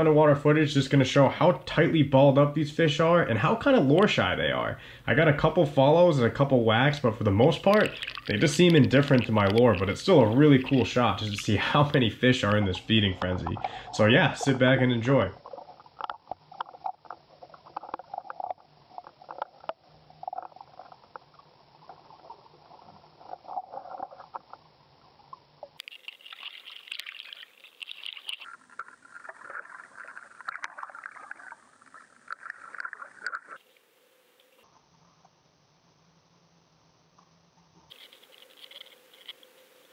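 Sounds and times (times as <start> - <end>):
underwater sloshing and bubbling: 0.0 - 35.2
underwater clicks and taps: 7.7 - 11.4.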